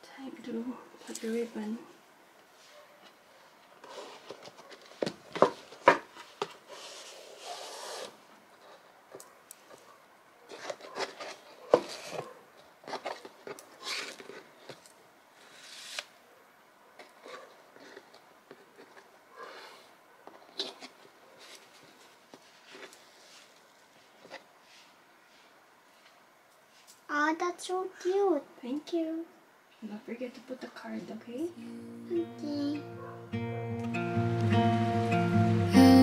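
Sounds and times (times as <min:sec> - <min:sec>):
ribbon rustling around box: 0:10.5 - 0:14.8, 0:17.1 - 0:26.0.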